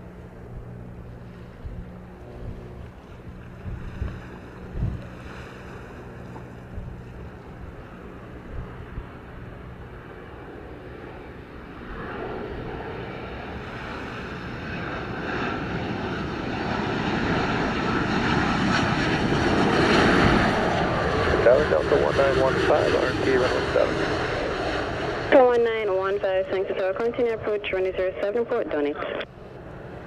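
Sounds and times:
jet engines on approach: 0.0 - 30.0
wind buffeting the microphone: 0.5 - 9.9.

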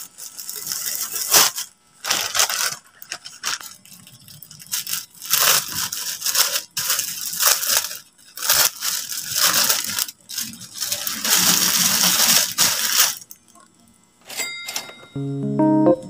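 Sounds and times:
plastic bag crinkling: 0.0 - 13.5
short chime: 14.4 - 16.0
background piano music: 15.2 - 16.0.

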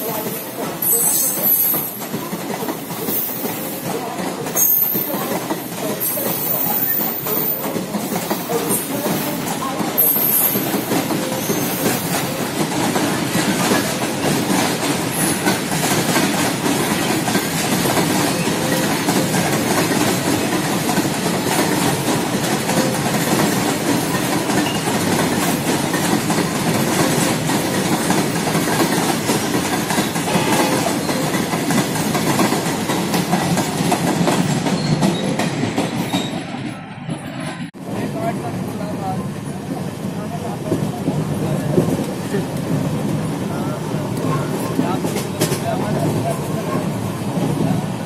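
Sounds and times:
freight train wheels clattering: 0.0 - 37.6.

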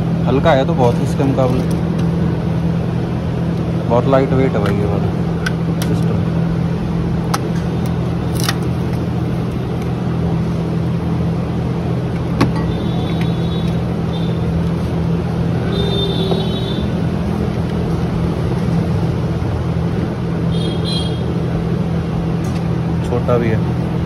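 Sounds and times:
mechanical hum: 0.0 - 24.0.

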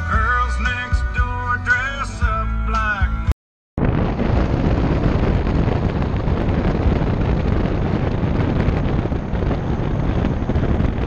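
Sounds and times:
wind buffeting microphone: 3.8 - 11.0.

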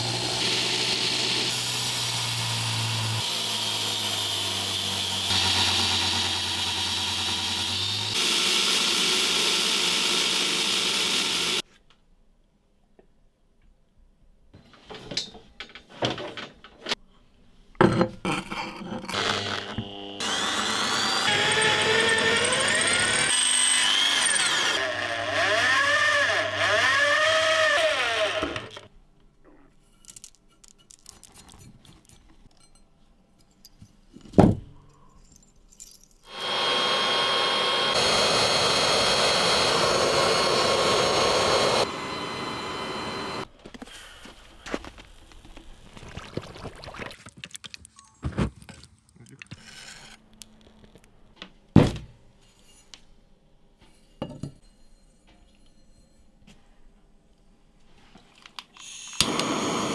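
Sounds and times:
electric drill boring steel: 0.0 - 11.6, 19.1 - 28.9, 36.3 - 43.5, 58.8 - 59.9.

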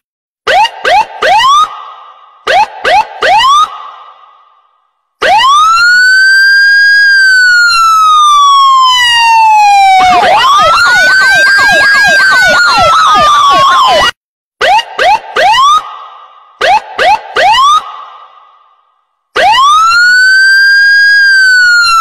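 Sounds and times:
electronic siren wail: 0.5 - 1.7, 2.5 - 3.7, 5.2 - 15.9, 16.6 - 17.9, 19.4 - 22.0.

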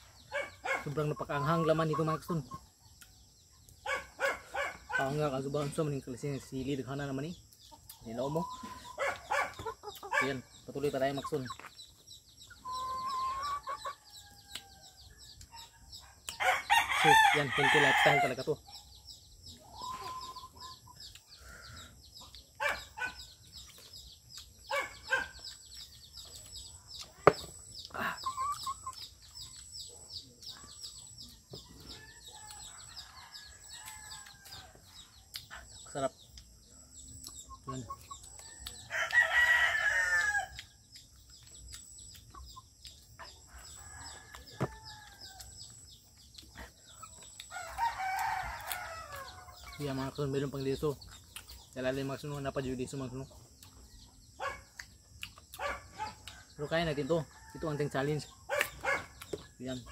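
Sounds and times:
birds chirping: 0.0 - 59.9
rooster crowing: 16.4 - 18.4, 38.6 - 40.6, 47.5 - 49.6.

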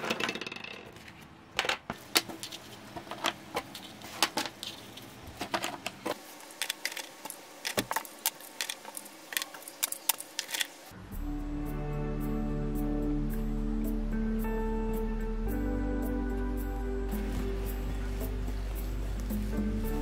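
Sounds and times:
macaron shells clicking on tray: 6.6 - 10.7.

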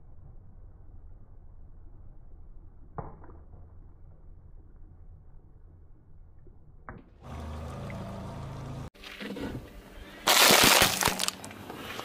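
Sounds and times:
tyre crushing plastic tub: 10.3 - 11.4.

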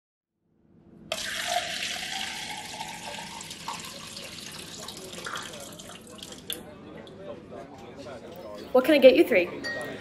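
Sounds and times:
water pouring into plastic cup: 1.1 - 6.6.

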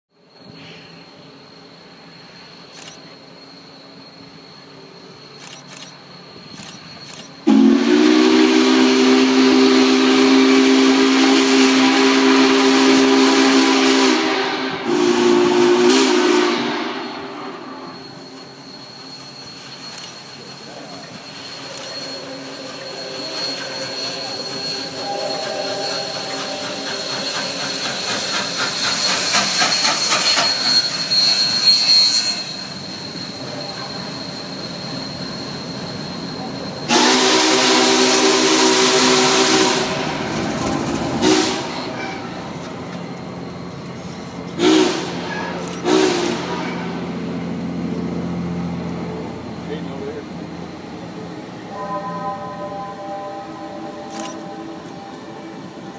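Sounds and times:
steam locomotive running: 0.2 - 55.9
steam hiss: 0.3 - 49.4
steam whistle blasts: 6.6 - 42.5, 44.4 - 47.2, 51.7 - 55.8.

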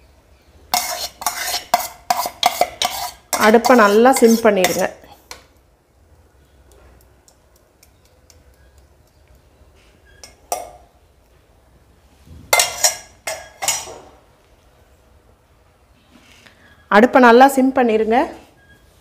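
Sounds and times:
metal spoon clinking on steel bowl: 0.7 - 5.1, 10.1 - 10.9, 12.6 - 13.9.

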